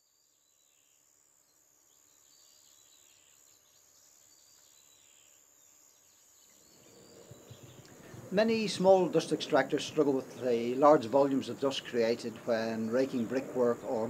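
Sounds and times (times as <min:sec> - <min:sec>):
steady high-pitched whine: 0:00.0 - 0:14.0
bird chirps: 0:06.0 - 0:14.0.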